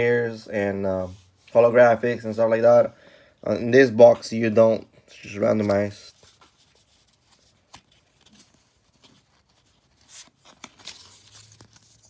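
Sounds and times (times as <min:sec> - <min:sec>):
cards rustling and clicking: 0:05.3 - 0:12.0.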